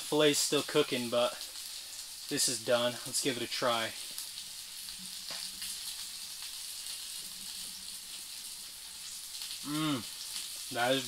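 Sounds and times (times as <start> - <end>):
fish frying in a pan: 0.0 - 11.0.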